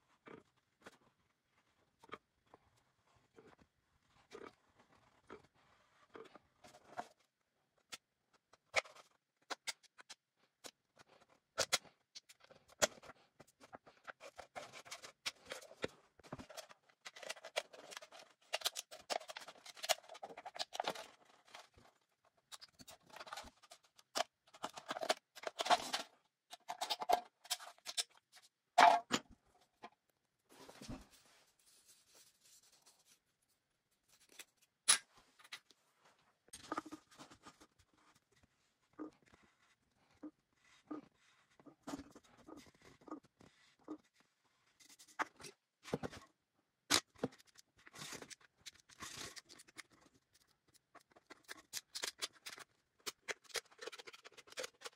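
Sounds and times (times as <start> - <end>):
aluminium can crinkling: 48.0 - 54.9.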